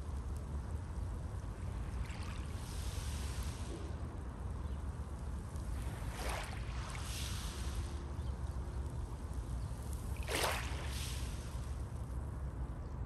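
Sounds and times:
low rumble of the sea: 0.0s - 13.0s
waves breaking on pebble shore: 10.2s - 11.5s.

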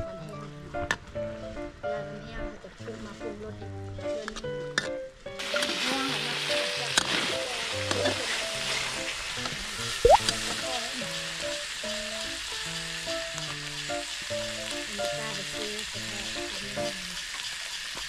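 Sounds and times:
vegetables sizzling in a pan: 5.4s - 18.0s.

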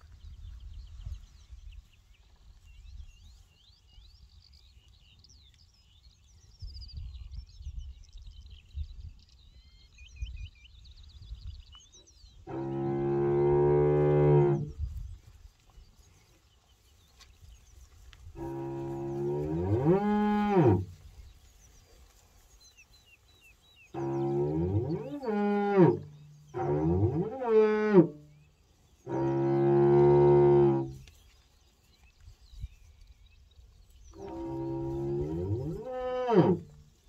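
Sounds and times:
cattle mooing: 18.4s - 20.9s, 24.0s - 26.0s, 26.6s - 28.1s, 34.2s - 36.7s.

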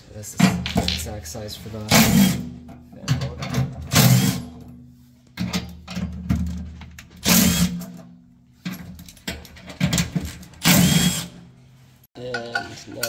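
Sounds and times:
impact driver running: 7.2s - 7.8s, 10.6s - 11.3s
clicks of bit and bolts: 8.6s - 11.1s.

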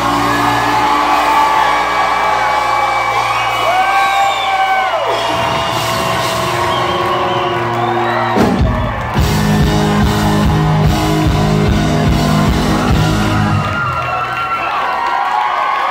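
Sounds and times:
live country band playing: 0.0s - 14.4s
crowd whooping: 0.0s - 15.9s.

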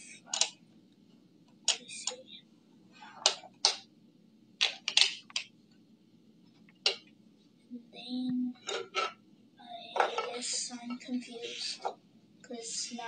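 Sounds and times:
plastic blocks clicking: 0.3s - 0.6s, 4.6s - 5.5s.

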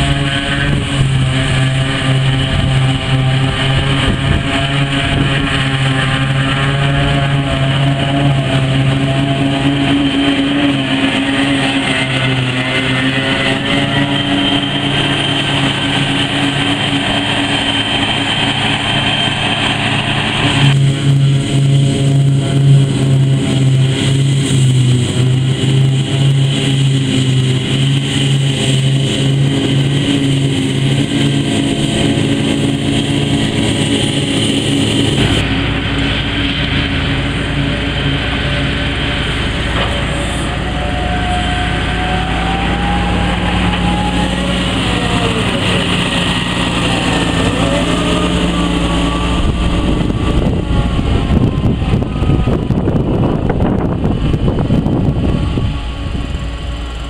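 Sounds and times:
forage harvester chopping grass: 0.0s - 41.1s
high whine: 0.0s - 57.0s
tractor engine: 0.0s - 57.0s.

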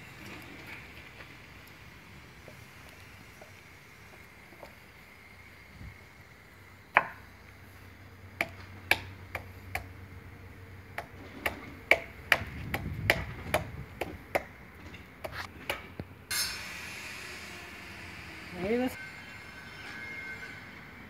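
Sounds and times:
burst of hiss: 16.3s - 18.6s.

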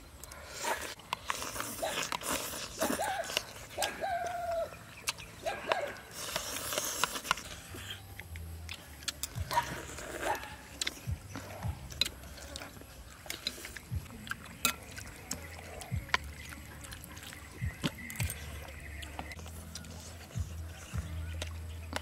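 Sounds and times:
chewing and sipping: 0.0s - 22.0s
spoons clicking against plates: 14.6s - 16.9s.

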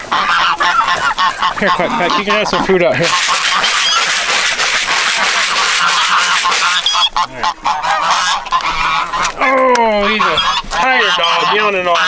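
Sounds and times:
geese honking: 0.0s - 12.0s.

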